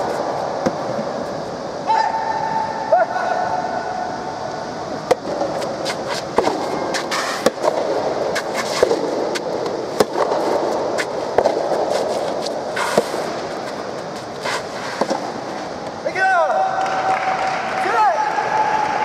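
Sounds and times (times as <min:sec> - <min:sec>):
tennis ball hit by rackets: 0:05.1 - 0:13.8.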